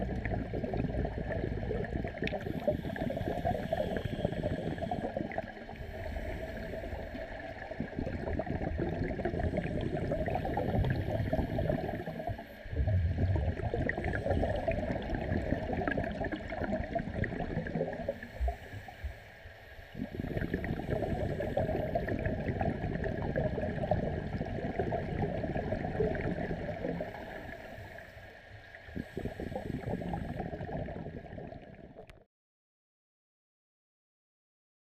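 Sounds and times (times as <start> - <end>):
underwater diver bubbles gurgling: 0.0 - 19.1, 19.8 - 28.0, 28.6 - 32.2.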